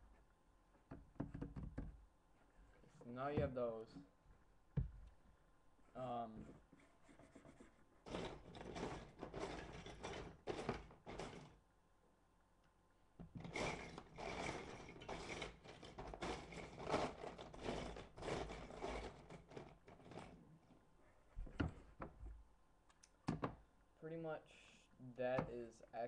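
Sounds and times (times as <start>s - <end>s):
plastic bricks clicking and rattling: 8.1s - 11.5s, 13.4s - 20.4s.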